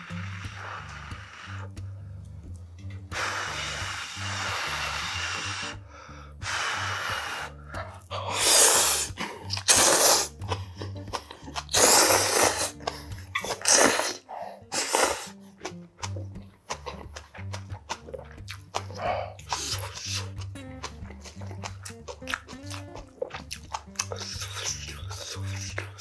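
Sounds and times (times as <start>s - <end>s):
man blowing on noodles: 0.0s - 2.3s, 3.0s - 25.8s
background music: 0.0s - 26.0s
loud slurping of noodles: 8.2s - 10.4s, 11.7s - 15.4s.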